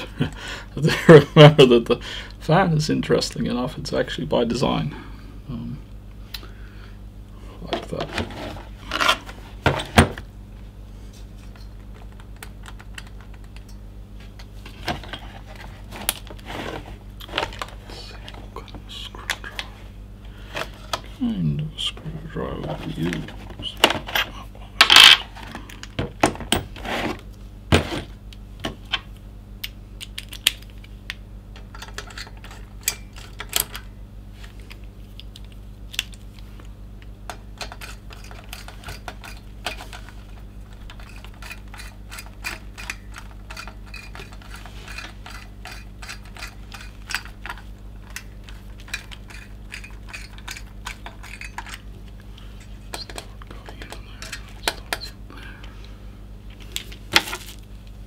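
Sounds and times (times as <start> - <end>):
faint steady hum: 0.0 - 58.0.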